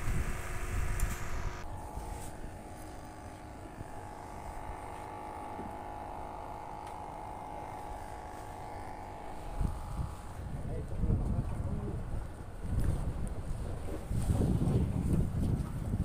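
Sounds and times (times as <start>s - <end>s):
wind buffeting microphone: 0.0s - 2.4s, 9.3s - 16.0s
low engine drone: 0.0s - 10.8s.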